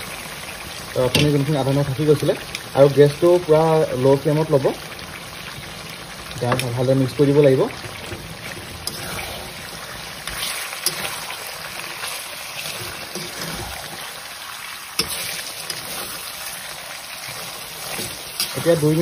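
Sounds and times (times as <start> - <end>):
curry sizzling in pan: 0.0 - 19.0
metal spatula scraping pan: 8.0 - 9.5, 10.2 - 14.1, 15.0 - 16.4.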